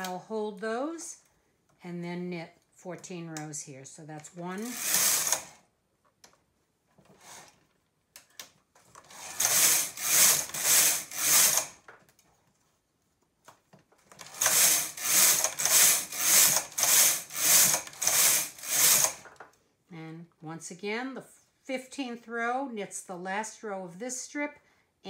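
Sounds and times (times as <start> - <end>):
knitting machine carriage swishing: 4.6 - 5.6, 8.9 - 11.7, 14.1 - 19.4.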